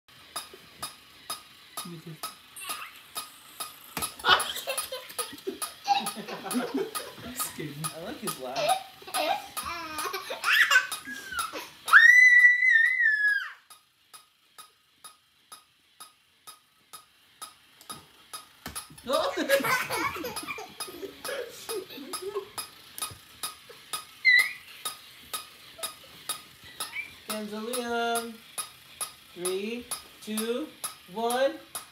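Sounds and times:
steady clicking: 0:00.1 - 0:31.9
short rising squeak: 0:24.2 - 0:24.7.

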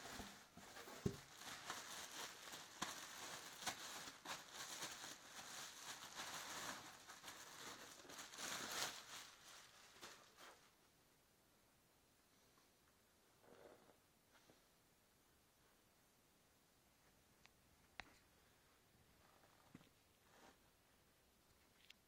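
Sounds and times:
plastic bag crinkling: 0:00.0 - 0:10.7.

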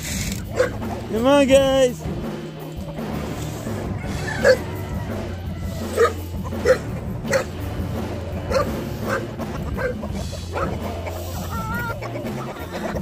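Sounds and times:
background music: 0:00.0 - 0:13.0
dog barking: 0:00.5 - 0:00.8, 0:04.4 - 0:04.7, 0:06.0 - 0:07.6, 0:08.5 - 0:10.8.

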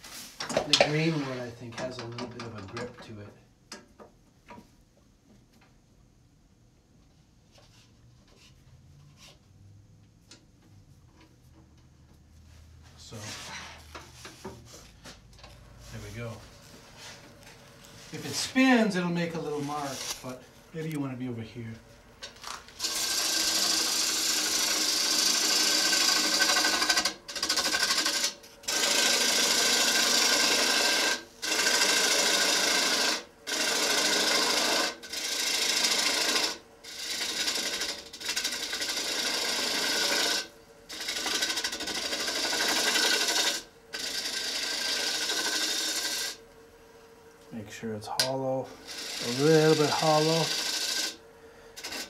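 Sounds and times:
gouge cutting wood on a lathe: 0:22.8 - 0:46.4, 0:48.7 - 0:51.2, 0:51.8 - 0:52.0.

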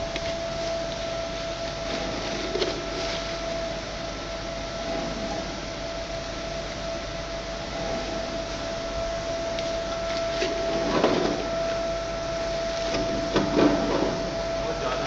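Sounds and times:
machinery hum and whine: 0:00.0 - 0:15.0.

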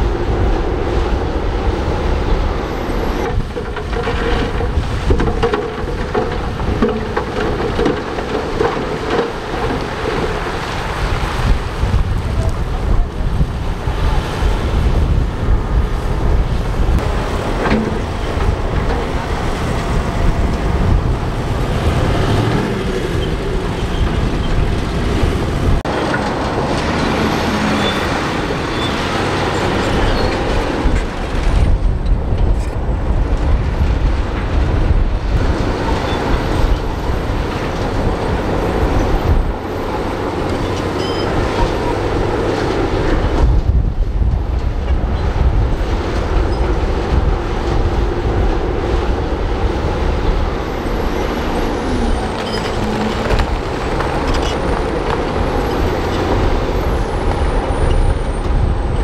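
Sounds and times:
dump trucks running: 0:00.0 - 0:59.0
soil and rock sliding out: 0:02.9 - 0:12.5, 0:50.9 - 0:58.0.

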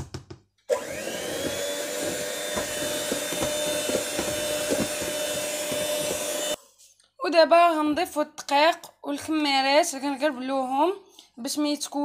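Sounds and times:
electric hand mixer whirring: 0:00.7 - 0:06.6.

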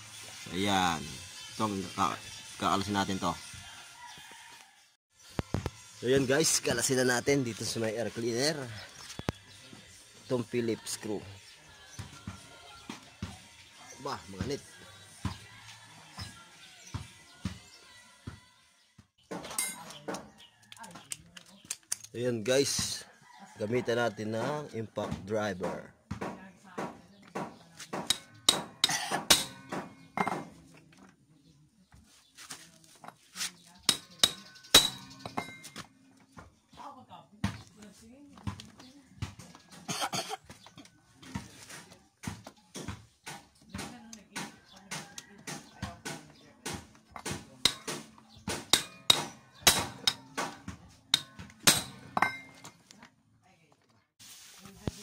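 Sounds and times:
metal pipe hitting impact driver: 0:28.0 - 0:30.5, 0:33.9 - 0:35.7, 0:51.2 - 0:52.6.

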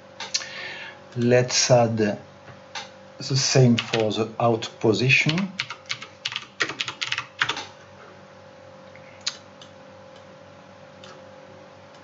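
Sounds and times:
faint steady hum: 0:00.0 - 0:12.0
keyboard typing: 0:03.7 - 0:04.1, 0:05.3 - 0:07.7.

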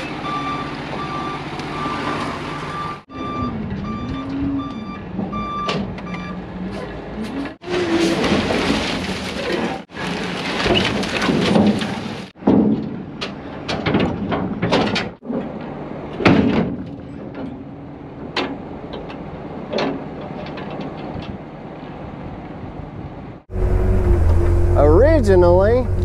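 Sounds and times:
sharp knocks and clunks: 0:10.6 - 0:15.6
engine running: 0:23.5 - 0:26.0.

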